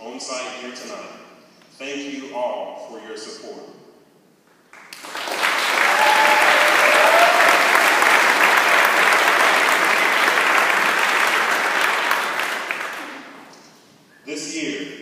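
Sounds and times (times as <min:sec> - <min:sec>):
audience applauding: 0:04.7 - 0:13.5.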